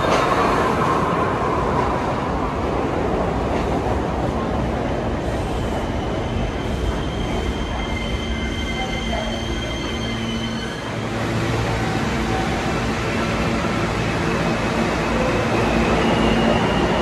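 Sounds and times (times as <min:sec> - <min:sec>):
subway train rumbling: 0:00.0 - 0:17.0
train wheels squealing: 0:05.6 - 0:11.1, 0:14.9 - 0:17.0.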